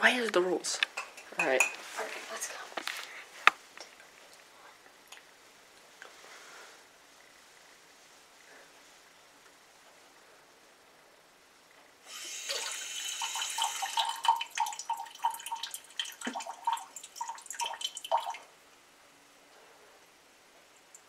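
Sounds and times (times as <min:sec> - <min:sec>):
faucet water filling a mug: 0:12.0 - 0:18.5.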